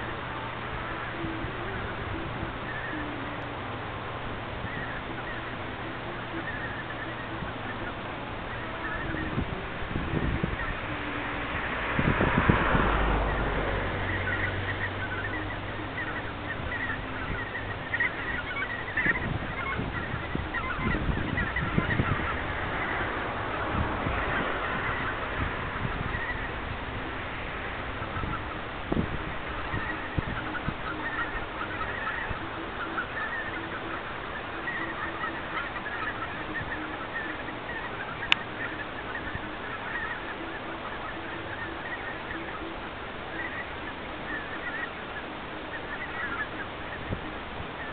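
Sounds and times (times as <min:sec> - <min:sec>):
geese yelping calls: 0:00.0 - 0:47.9
low steady hum: 0:00.0 - 0:47.9.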